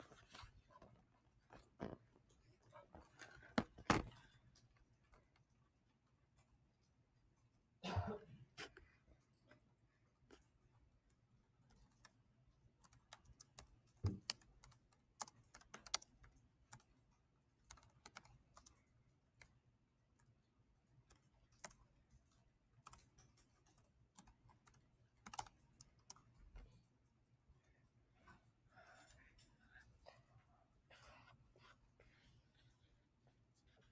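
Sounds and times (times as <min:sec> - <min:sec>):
keyboard keys clicking: 0:12.8 - 0:16.9, 0:22.8 - 0:26.2.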